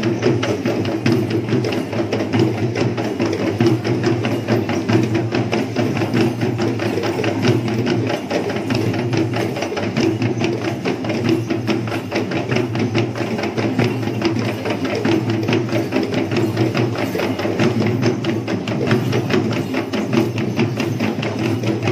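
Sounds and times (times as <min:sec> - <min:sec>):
drums beating fast: 0:00.0 - 0:21.9.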